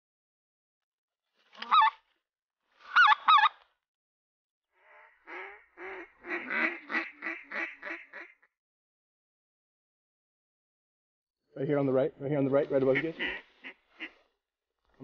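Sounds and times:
goose calls: 1.6 - 2.0, 2.9 - 3.6, 4.9 - 8.4, 12.9 - 14.2.

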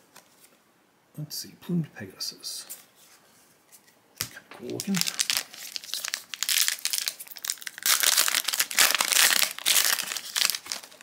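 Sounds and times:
foil wrapper crinkling: 4.6 - 11.0.

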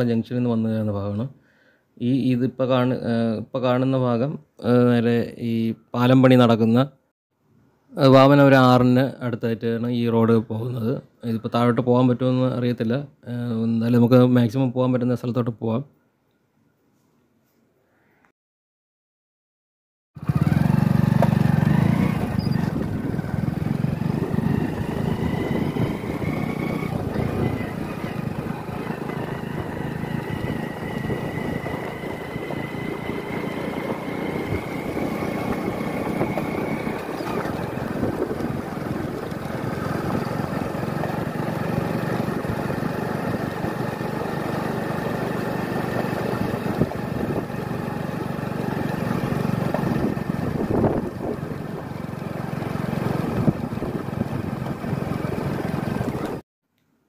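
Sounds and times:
motorcycle engine running: 20.2 - 56.4.

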